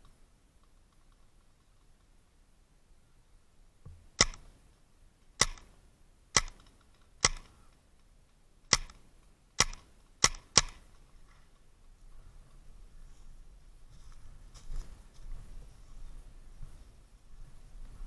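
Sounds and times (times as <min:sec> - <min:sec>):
paintball marker shots: 0:03.9 - 0:04.5, 0:05.4 - 0:05.7, 0:06.3 - 0:07.6, 0:08.7 - 0:09.0, 0:09.6 - 0:10.9.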